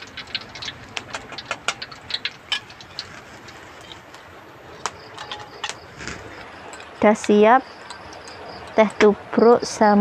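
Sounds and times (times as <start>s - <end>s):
food frying in hot oil: 0.0s - 10.0s.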